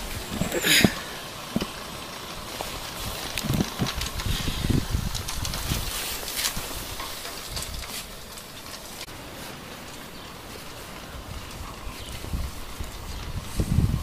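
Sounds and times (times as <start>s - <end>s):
wind rumble on microphone: 2.7s - 8.0s, 11.0s - 14.0s.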